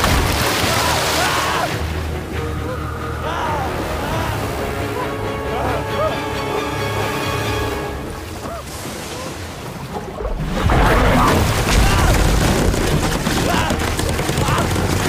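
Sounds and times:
dramatic film score: 0.0 - 15.0
people shouting: 0.6 - 7.2, 10.8 - 12.4, 13.3 - 14.8.

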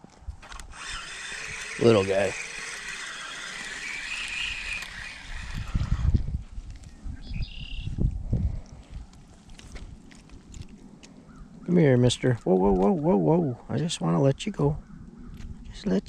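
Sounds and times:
fishing reel gear whir: 0.4 - 6.5.

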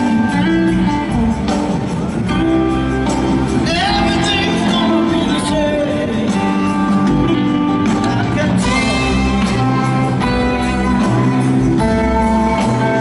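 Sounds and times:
bass: 0.0 - 13.0
drums: 0.0 - 13.0
electric guitar: 0.0 - 13.0.

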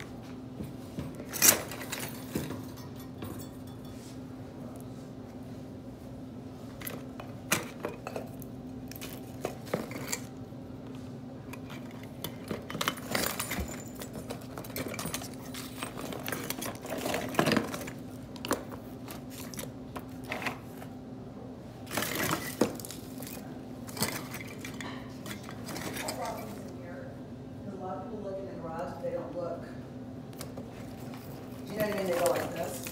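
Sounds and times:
low steady hum: 0.0 - 32.9
glass ornaments clinking: 1.3 - 4.2.

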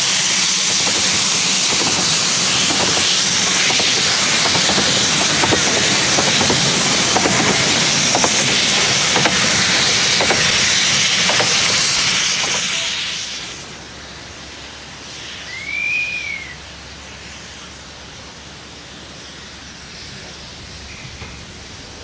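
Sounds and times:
train wheels clicking: 0.0 - 13.5
steam train hiss: 0.0 - 22.0.

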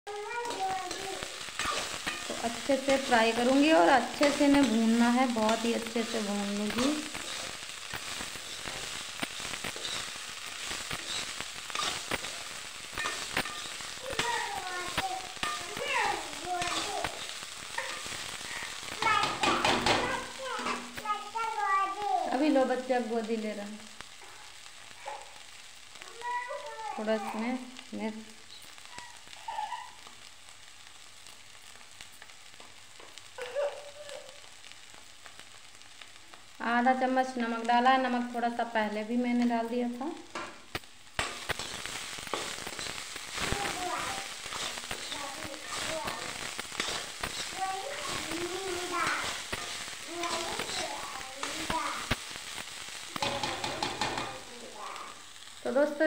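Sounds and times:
vegetables sizzling in oil: 0.0 - 56.0
metal spoon scraping pan: 0.4 - 14.5, 41.2 - 50.8.

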